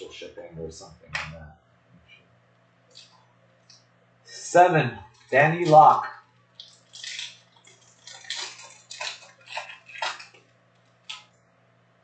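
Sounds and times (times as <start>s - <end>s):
foil wrapper crinkling and tearing: 6.5s - 11.3s.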